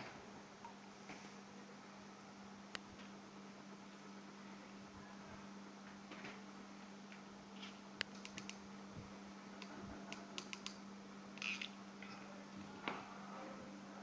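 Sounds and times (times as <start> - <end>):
steady low hum: 0.0 - 14.0
glue gun clicks and taps: 10.4 - 10.8.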